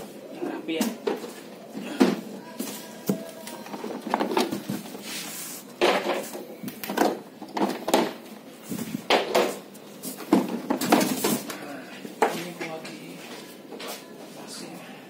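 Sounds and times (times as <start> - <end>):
plastic panels knocking and scraping: 3.1 - 4.9, 5.8 - 8.2.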